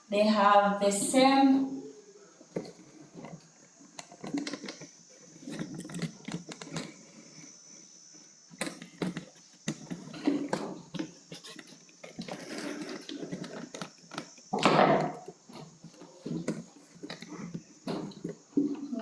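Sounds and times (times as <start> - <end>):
faint high-pitched whine: 0.0 - 19.0.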